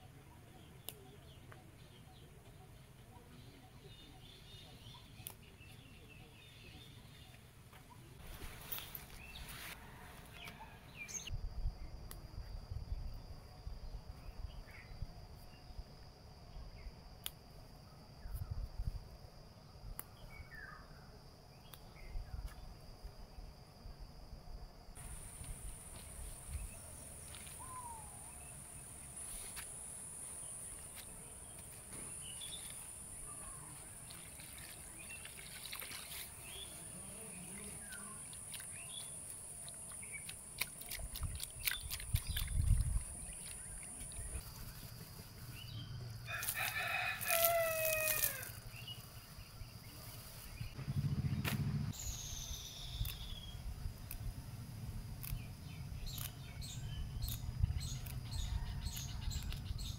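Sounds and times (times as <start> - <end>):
bird chirp: 0.0 - 9.6, 26.5 - 29.5, 30.3 - 46.2, 48.7 - 53.7, 55.2 - 59.9
insects droning: 8.2 - 59.9
rooster crowing: 9.6 - 11.0, 46.2 - 48.6, 58.3 - 59.4
leaves washed in bowl of water: 33.8 - 44.4.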